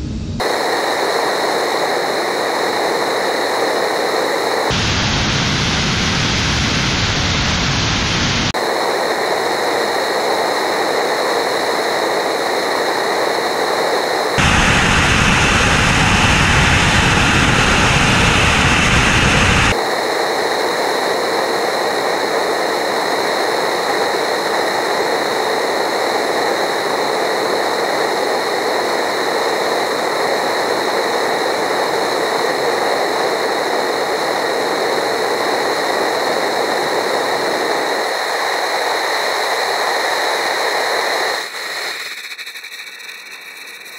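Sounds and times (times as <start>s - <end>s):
rocket engine roaring: 0.0s - 8.6s, 14.2s - 19.8s.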